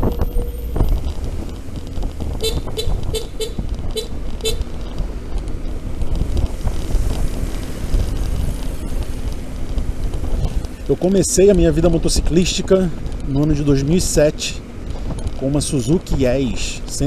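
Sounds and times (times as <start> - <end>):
road and wind rumble: 0.0 - 17.0
short horn toots: 2.4 - 4.6.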